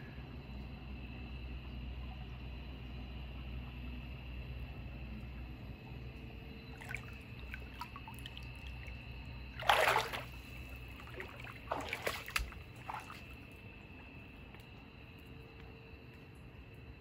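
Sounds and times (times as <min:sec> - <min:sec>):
bath water splashing: 0:06.7 - 0:08.9, 0:09.5 - 0:13.4.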